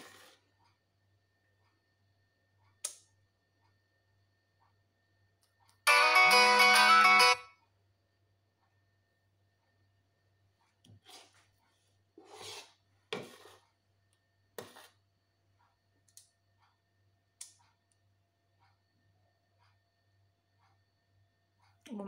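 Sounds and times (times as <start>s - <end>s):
metal spoon scraping: 12.2s - 13.6s, 14.6s - 15.0s.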